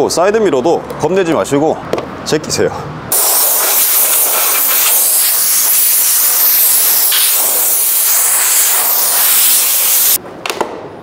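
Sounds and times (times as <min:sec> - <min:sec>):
air blow gun hissing: 0:03.1 - 0:10.2.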